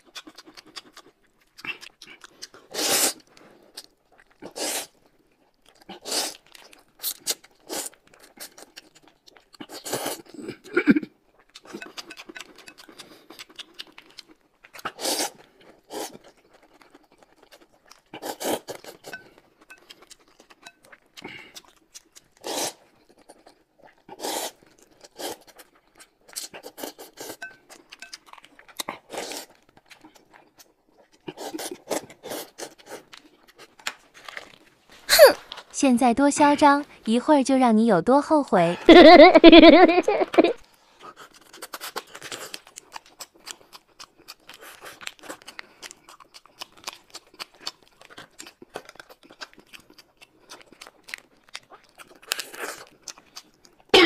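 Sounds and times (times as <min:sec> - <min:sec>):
noodles slurped: 0:00.0 - 0:05.1, 0:05.8 - 0:33.9, 0:39.5 - 0:54.0
chewing: 0:00.0 - 0:35.7, 0:40.0 - 0:54.0
plastic packets crinkling and tearing: 0:33.6 - 0:35.7.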